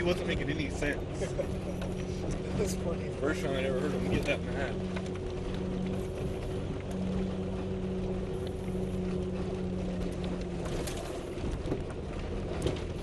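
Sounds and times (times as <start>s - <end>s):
vehicle engine running: 0.0s - 13.0s
clicks and knocks from rough ground: 10.1s - 13.0s.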